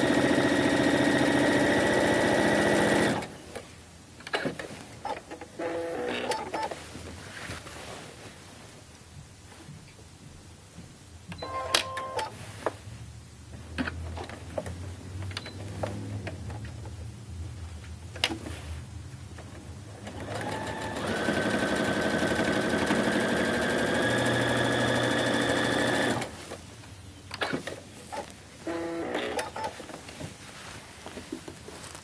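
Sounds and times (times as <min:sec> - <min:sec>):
sewing machine stitching: 0:00.0 - 0:03.3, 0:20.0 - 0:26.3.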